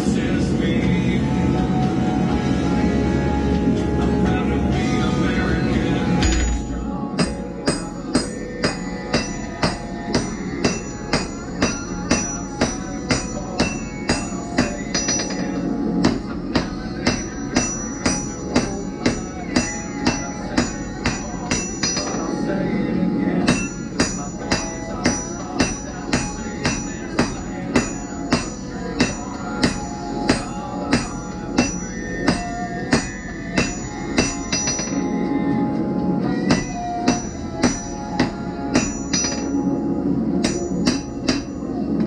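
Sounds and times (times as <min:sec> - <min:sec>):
hammer striking metal on anvil: 0:06.2 - 0:22.4, 0:23.5 - 0:35.1, 0:36.4 - 0:39.8, 0:40.4 - 0:41.9.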